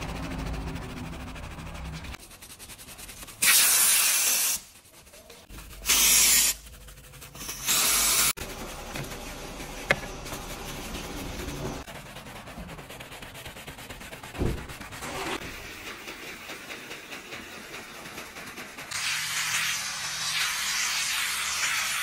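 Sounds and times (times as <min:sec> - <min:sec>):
brush scrubbing: 0:00.0 - 0:22.0
pressurized nozzle hissing bursts: 0:03.4 - 0:04.7, 0:05.8 - 0:06.6, 0:07.5 - 0:08.4.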